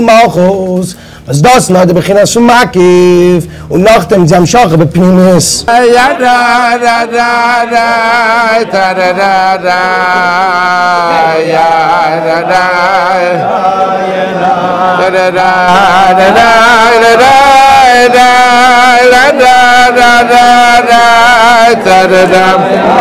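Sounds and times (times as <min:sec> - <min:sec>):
men singing slow chant: 0:05.7 - 0:23.0.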